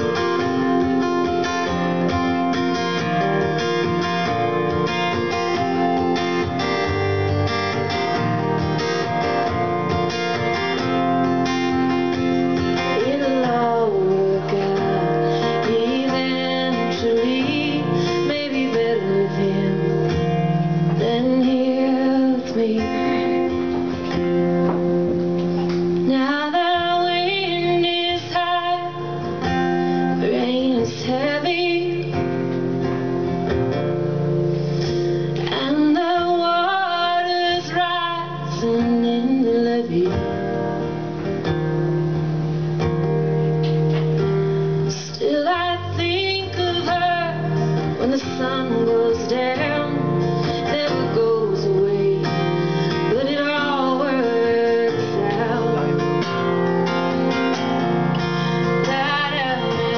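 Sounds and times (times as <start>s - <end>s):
acoustic guitar: 0.0s - 59.9s
woman singing: 11.9s - 24.4s, 26.0s - 32.6s, 35.3s - 41.0s, 44.8s - 59.9s.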